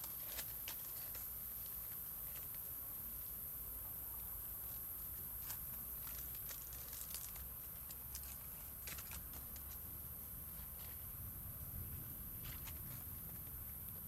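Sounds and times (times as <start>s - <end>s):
light clicks and crackles: 0.0s - 2.8s, 5.4s - 9.9s
steady high-pitched hiss: 0.0s - 14.0s.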